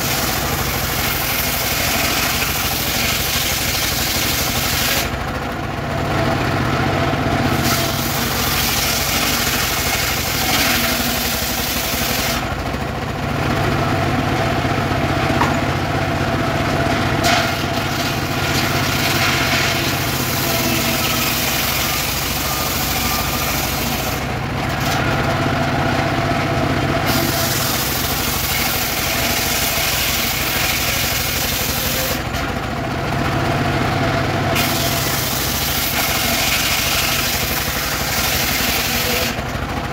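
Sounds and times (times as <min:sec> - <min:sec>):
saw blade cutting wood: 0:00.0 - 0:05.3, 0:07.4 - 0:12.7, 0:15.3 - 0:15.8, 0:16.8 - 0:25.4, 0:27.0 - 0:32.7, 0:34.6 - 0:39.8
engine drone: 0:00.0 - 0:39.9
saw blade spinning free: 0:07.5 - 0:12.6, 0:17.2 - 0:25.0, 0:27.0 - 0:32.3, 0:34.6 - 0:39.5.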